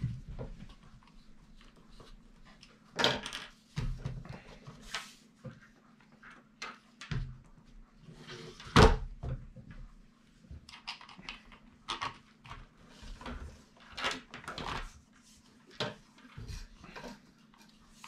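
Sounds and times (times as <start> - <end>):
knocks and clatter on tile table: 3.0 - 4.2.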